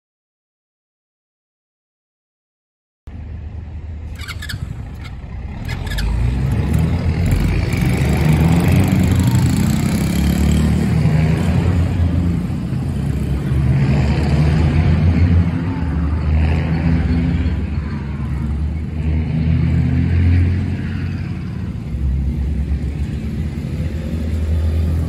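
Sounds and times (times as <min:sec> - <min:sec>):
quad bike engine running: 0:04.0 - 0:25.0.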